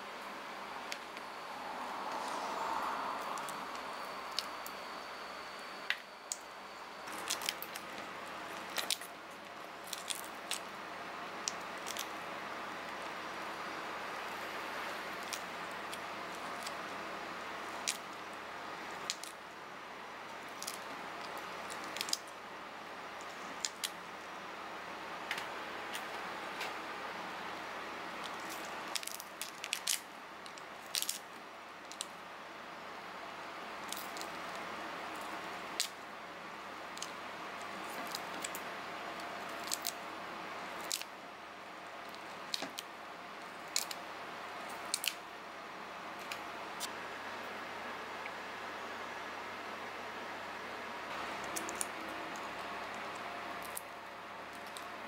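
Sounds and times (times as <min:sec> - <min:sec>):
steady background hiss: 0:00.0 - 0:55.0
shrimp shell cracking: 0:30.8 - 0:31.2, 0:39.6 - 0:40.0.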